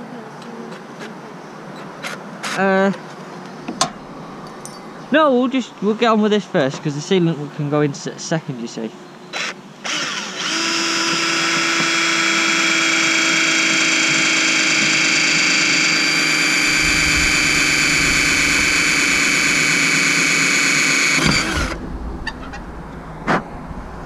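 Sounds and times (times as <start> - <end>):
power drill whining: 9.4 - 21.8.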